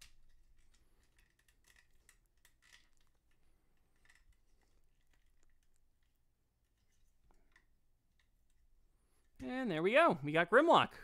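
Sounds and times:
plastic toy parts clicking: 0.0 - 3.4.

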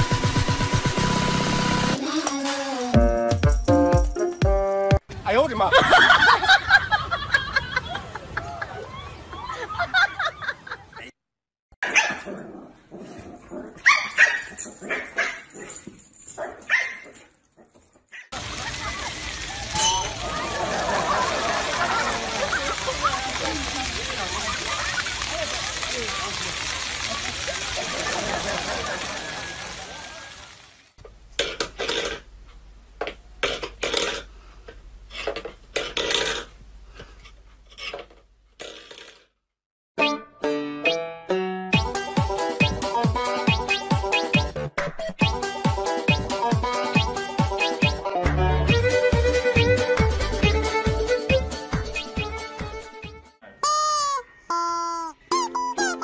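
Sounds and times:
music: 0.0 - 5.0, 40.0 - 53.4, 55.3 - 56.0
dogs barking and yipping: 11.8 - 12.3, 13.6 - 18.4.

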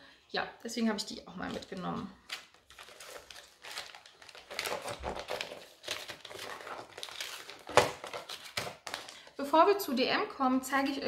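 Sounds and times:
plastic packaging crinkling: 1.4 - 9.3.

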